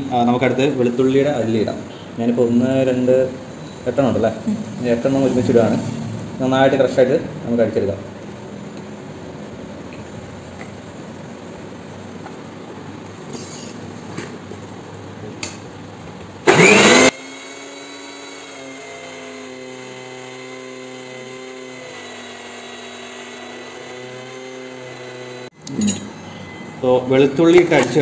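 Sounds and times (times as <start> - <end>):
mixer grinder running: 16.4 - 25.6.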